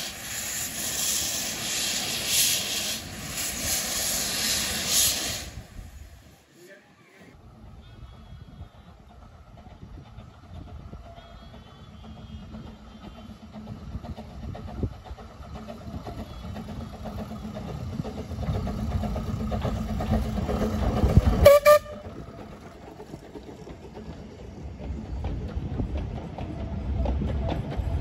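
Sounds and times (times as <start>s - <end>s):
steam locomotive running: 0.0s - 28.0s
steam whistle toot: 21.4s - 22.1s.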